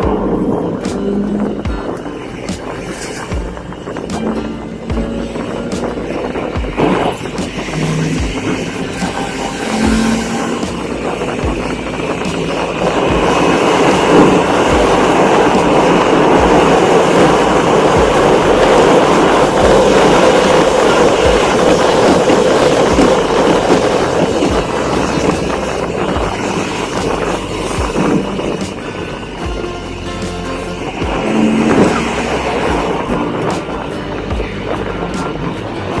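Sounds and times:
low thuds: 0.0s - 36.0s
vehicle rumble in motion: 0.0s - 36.0s.

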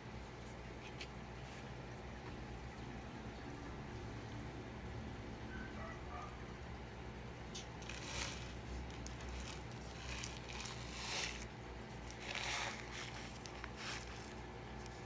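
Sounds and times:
steady low hum: 0.0s - 15.0s
plastic film crinkling: 7.6s - 15.0s.

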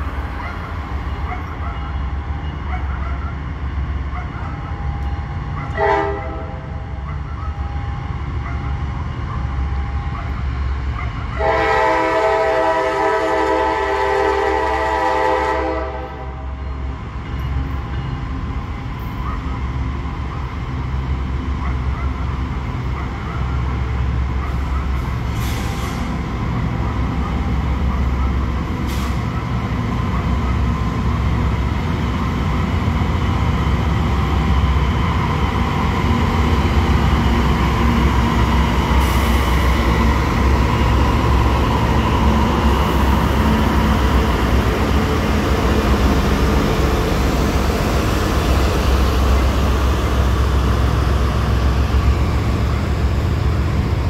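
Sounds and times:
diesel locomotive rumble: 0.0s - 54.0s
locomotive air horn: 5.8s - 6.9s, 11.4s - 16.5s.

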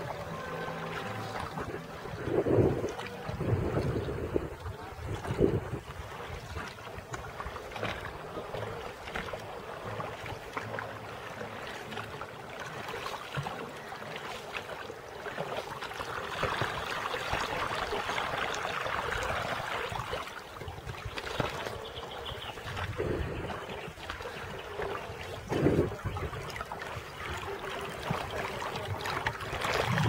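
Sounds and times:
water lapping against boat: 0.0s - 30.0s.

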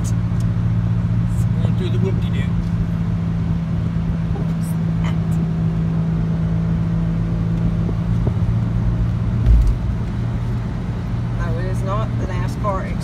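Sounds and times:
vehicle engine drone: 0.0s - 13.0s
low thump: 9.4s - 10.1s.

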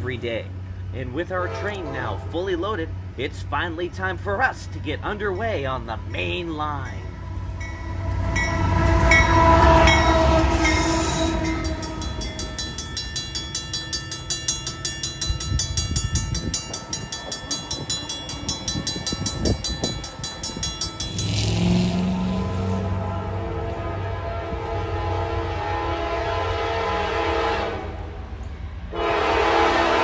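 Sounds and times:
low engine rumble: 0.0s - 27.0s
passing train clatter: 0.0s - 30.0s
train horn: 1.3s - 2.5s, 7.2s - 12.8s, 21.2s - 28.2s, 28.9s - 30.0s.

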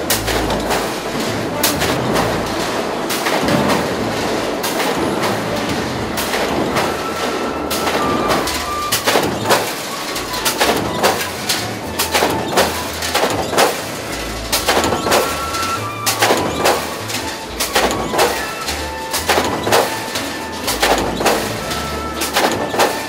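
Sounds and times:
metallic knocks and clatter: 0.0s - 23.0s
stamping press machine noise: 0.0s - 23.0s.

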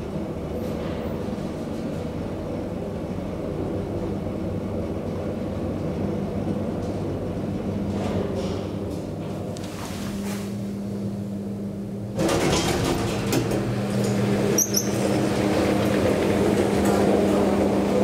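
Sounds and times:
elevator hum: 0.0s - 18.0s
elevator doors sliding open: 12.1s - 18.0s
click and squeak: 14.6s - 15.0s.

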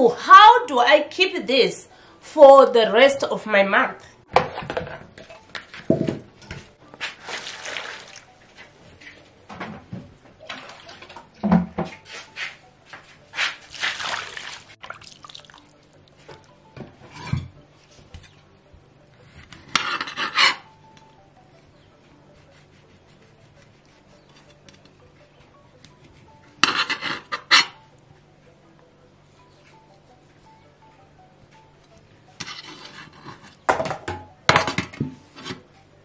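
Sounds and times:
water splashing and sloshing: 7.0s - 8.5s, 10.3s - 12.4s, 13.4s - 16.5s.

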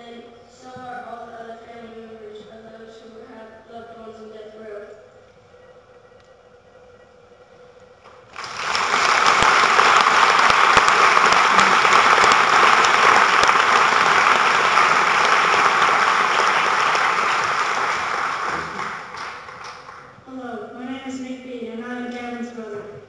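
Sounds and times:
audience applauding: 8.3s - 20.2s.

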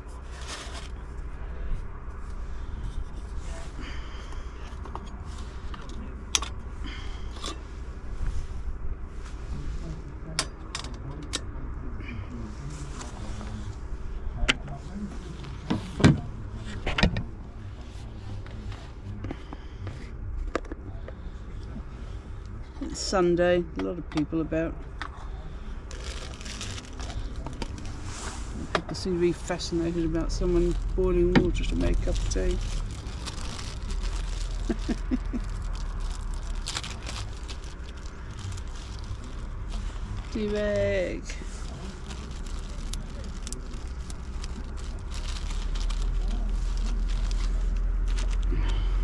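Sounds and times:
low outdoor rumble: 0.0s - 49.0s
wrapper crinkling and tearing: 25.9s - 28.0s, 30.0s - 40.8s, 41.4s - 48.6s.

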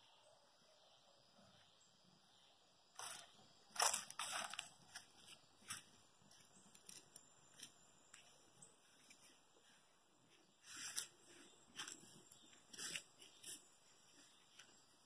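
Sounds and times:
footsteps crunching dry leaves: 3.0s - 9.8s, 10.6s - 14.5s.

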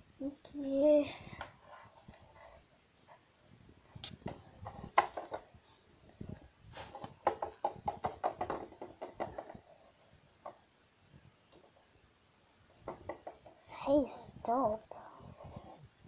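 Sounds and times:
plastic figures knocking on table: 7.2s - 9.6s.

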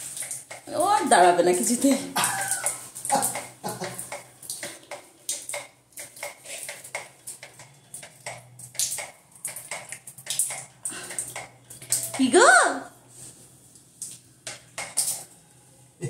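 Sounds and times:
water splashing: 0.0s - 12.8s.

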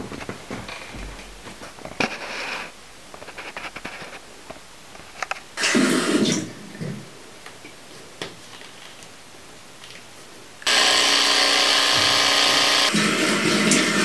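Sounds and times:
electric toothbrush buzzing: 10.6s - 14.0s.

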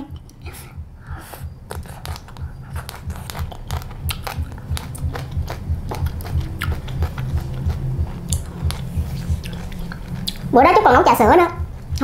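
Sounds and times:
chewing with wet mouth clicks: 1.2s - 10.5s.

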